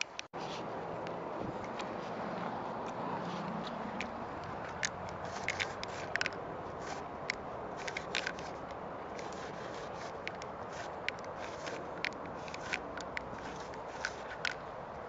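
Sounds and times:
street noise: 0:00.0 - 0:15.0
paint marker scraping on metal: 0:02.9 - 0:14.6.

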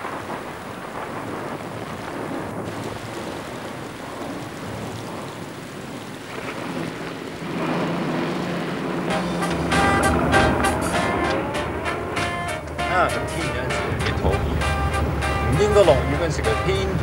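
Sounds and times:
heavy rain pouring: 0:00.0 - 0:17.0
low pitched hum: 0:07.4 - 0:17.0.

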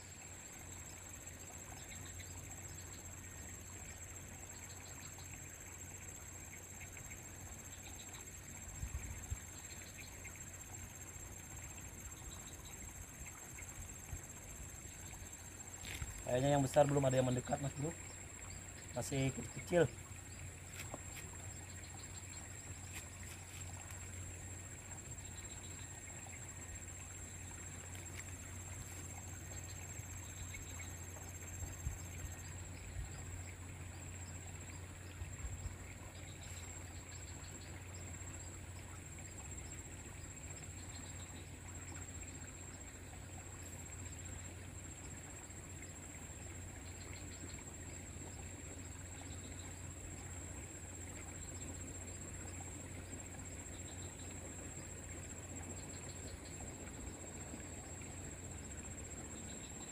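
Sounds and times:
insects droning: 0:00.0 - 0:59.9
faint chirps: 0:06.4 - 0:24.2.

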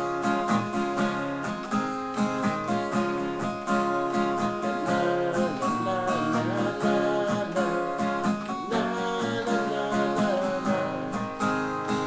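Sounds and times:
acoustic guitar strumming: 0:00.0 - 0:12.0
man singing: 0:04.4 - 0:11.6.

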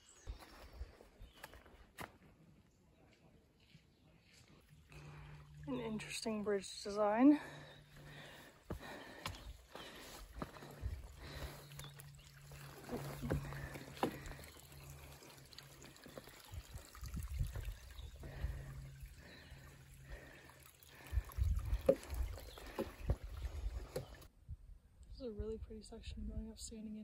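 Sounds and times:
water trickling: 0:04.7 - 0:24.3
footsteps on wooden boardwalk: 0:07.4 - 0:14.5, 0:21.6 - 0:24.2.

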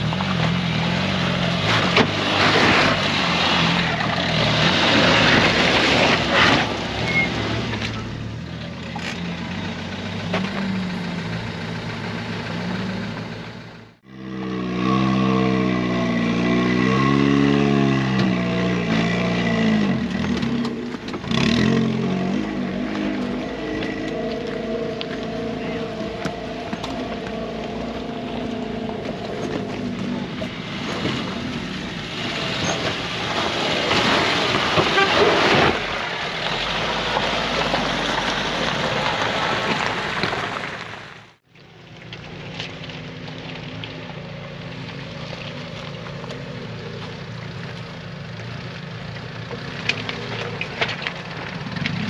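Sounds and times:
engine revving: 0:00.0 - 0:36.0
car engine running: 0:07.1 - 0:14.2, 0:18.2 - 0:32.1.

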